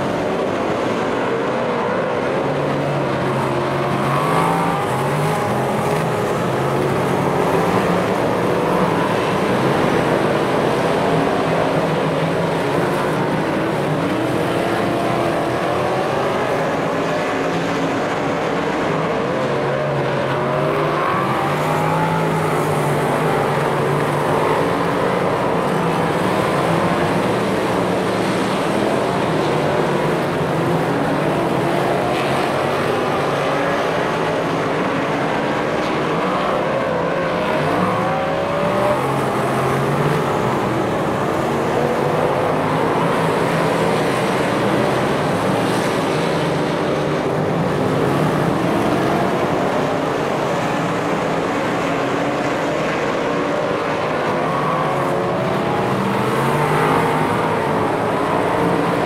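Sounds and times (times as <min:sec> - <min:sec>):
racing car engines revving: 0:00.0 - 0:59.0.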